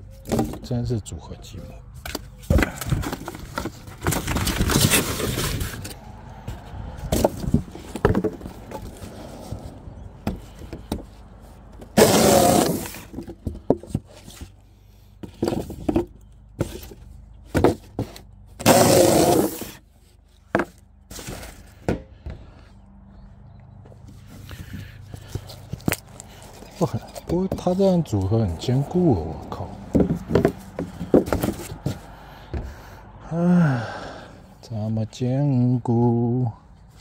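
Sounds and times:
wooden pieces knocking and scraping: 0.1s - 0.8s, 2.0s - 14.6s, 15.2s - 22.5s, 23.9s - 27.8s, 29.9s - 32.8s
loud noisy bursts: 12.0s - 13.0s.

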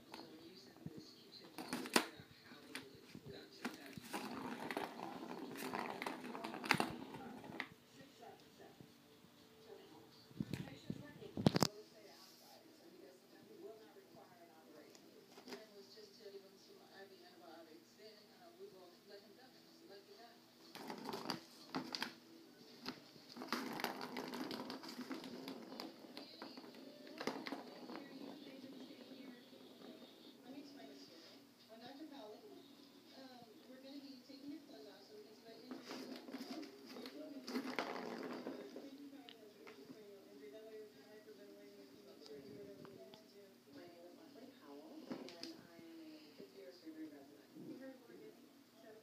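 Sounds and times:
cat scratching cardboard: 3.6s - 7.7s
plastic ball clattering on track: 23.3s - 29.9s, 35.8s - 38.9s.

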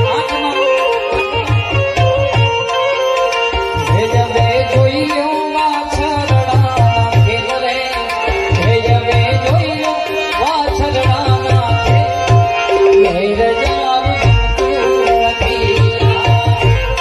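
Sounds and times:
hand drum beat: 10.6s - 17.0s.

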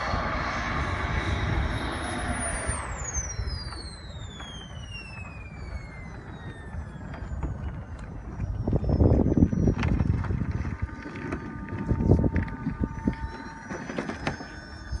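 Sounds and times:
gusty low rumbling noise: 0.0s - 15.0s
model jet turbine whining: 0.0s - 15.0s.

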